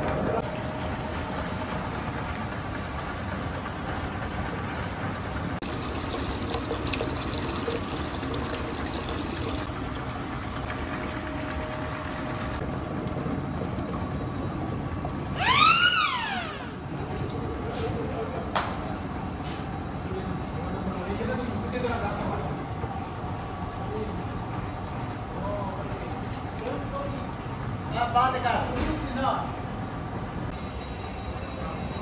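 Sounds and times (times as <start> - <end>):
steady machine noise: 0.0 - 23.9, 30.5 - 32.0
water pouring and splashing: 5.6 - 15.8.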